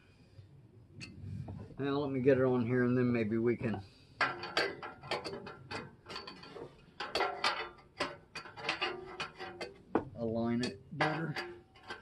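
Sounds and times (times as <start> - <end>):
metal exhaust muffler clicking and scraping: 3.7 - 12.0.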